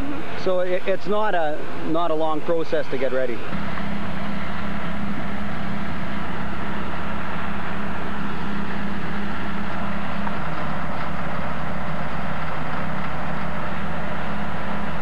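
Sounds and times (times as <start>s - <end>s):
heavy machinery diesel engines droning: 0.0s - 15.0s.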